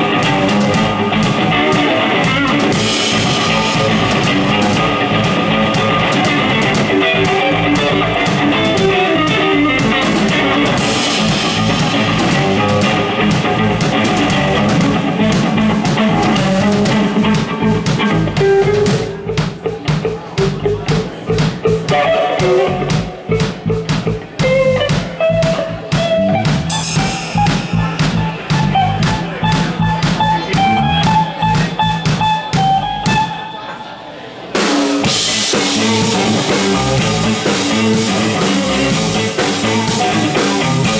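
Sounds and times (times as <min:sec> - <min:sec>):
drum kit: 0:00.0 - 0:33.7, 0:34.6 - 0:40.9
electric guitar: 0:00.0 - 0:33.9, 0:34.6 - 0:40.9
cymbals crashing: 0:26.7 - 0:29.4.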